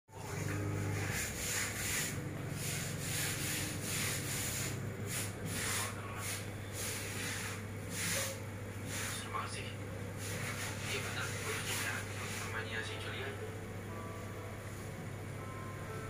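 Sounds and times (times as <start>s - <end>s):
rubbing strokes on a surface: 0.2s - 9.6s, 10.2s - 12.8s
steady low hum: 0.2s - 16.0s.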